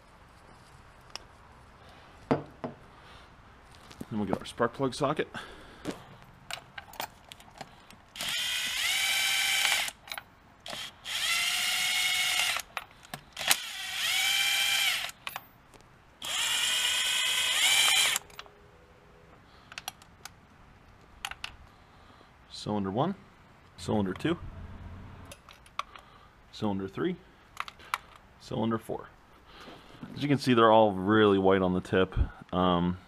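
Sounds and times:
cordless drill motor whine: 0:08.2 - 0:10.0, 0:10.7 - 0:12.7, 0:13.4 - 0:15.2, 0:16.2 - 0:18.3
metallic clicks of tools: 0:09.6 - 0:10.9, 0:12.4 - 0:13.7, 0:15.0 - 0:15.5, 0:19.7 - 0:20.4, 0:25.3 - 0:26.1, 0:27.5 - 0:28.3.

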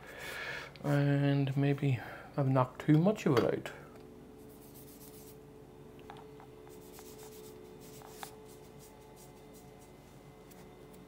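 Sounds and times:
low steady hum: 0:00.0 - 0:11.0
paintbrush scratching on palette: 0:04.4 - 0:05.4, 0:06.7 - 0:10.7.

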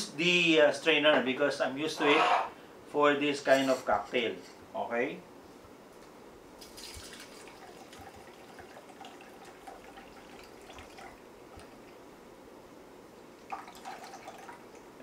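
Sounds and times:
liquid trickling into glass: 0:06.7 - 0:11.9, 0:13.4 - 0:14.8.

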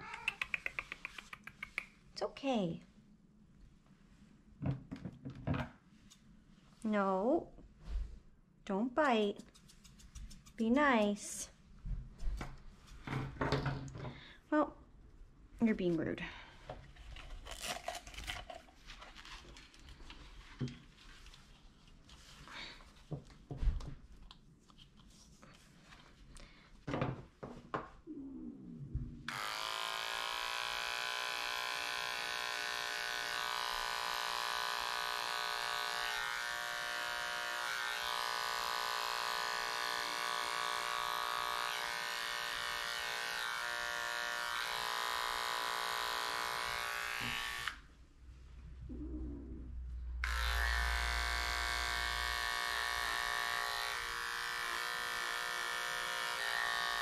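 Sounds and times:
knocks and handling sounds: 0:04.6 - 0:06.3, 0:11.8 - 0:14.2, 0:16.6 - 0:28.0
pet clipper buzzing: 0:29.3 - 0:47.9, 0:50.2 - 0:57.0.

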